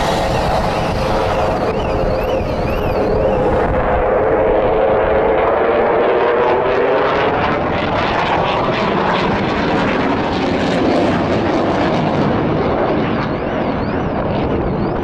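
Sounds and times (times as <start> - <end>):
jet roar: 0.0 - 15.0.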